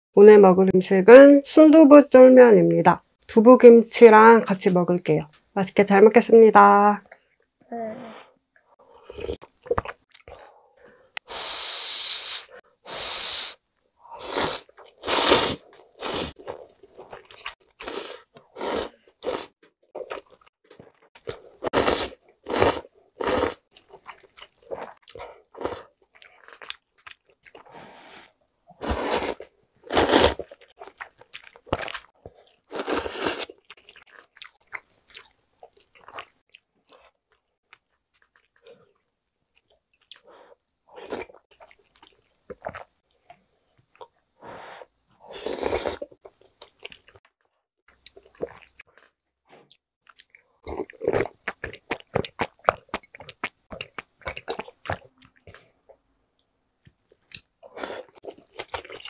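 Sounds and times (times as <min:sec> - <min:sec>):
slurping noodles: 0:11.2 - 0:19.6, 0:21.4 - 0:23.6, 0:27.6 - 0:30.6, 0:32.4 - 0:33.6, 0:45.2 - 0:46.2
wet chewing: 0:47.9 - 0:56.0, 0:56.9 - 0:59.0.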